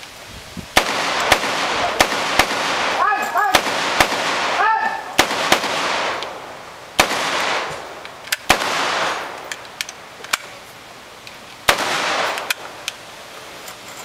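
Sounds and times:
rifle shots echoing: 0.8s - 9.8s, 11.7s - 12.8s.

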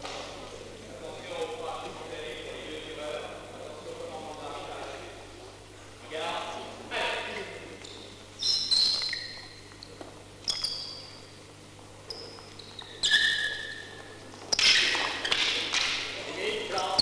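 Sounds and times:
shoe squeaks on floor: 7.8s - 11.4s, 12.0s - 15.7s.

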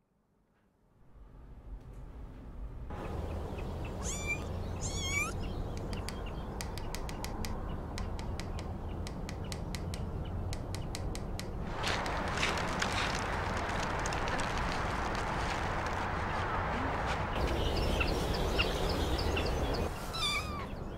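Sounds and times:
short high descending calls: 4.0s - 5.4s
sharp clicks: 5.7s - 11.6s
rushing noise: 11.6s - 20.4s.

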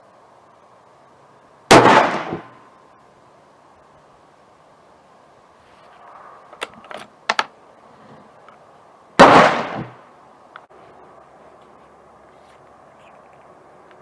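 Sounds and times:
rifle shot: 1.7s - 2.6s, 9.2s - 10.0s.

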